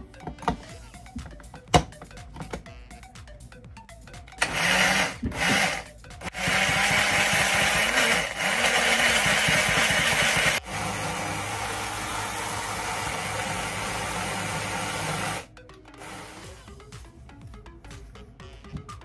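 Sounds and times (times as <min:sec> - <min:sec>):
electric blender motor grinding: 0:04.4 - 0:16.7.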